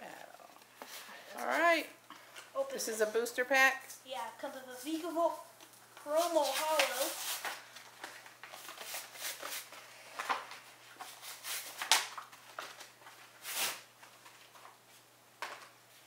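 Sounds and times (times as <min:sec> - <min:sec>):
packaging crinkling and tearing: 0:06.4 - 0:14.8.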